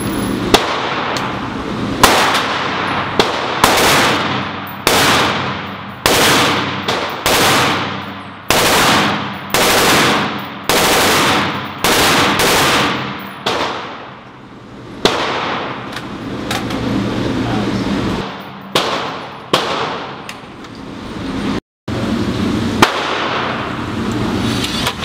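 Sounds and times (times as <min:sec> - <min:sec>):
rifle shots echoing indoors: 0:00.5 - 0:01.3, 0:02.0 - 0:14.2, 0:15.0 - 0:15.9, 0:18.2 - 0:20.3, 0:22.8 - 0:23.7.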